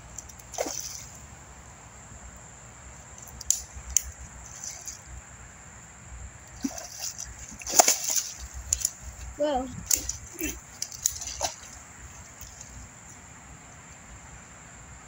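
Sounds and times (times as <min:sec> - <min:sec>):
fish splashing in water: 0:00.4 - 0:01.3, 0:03.4 - 0:05.1, 0:06.5 - 0:12.9.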